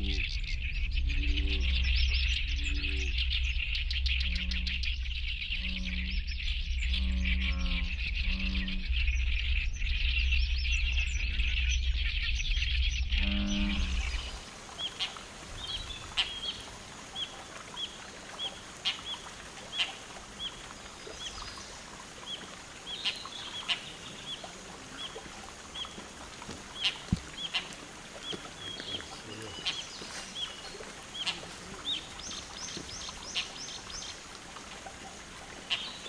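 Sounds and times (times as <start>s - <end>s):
low pitched bird calls: 0.0s - 34.2s
dense high bird chorus: 13.4s - 34.3s.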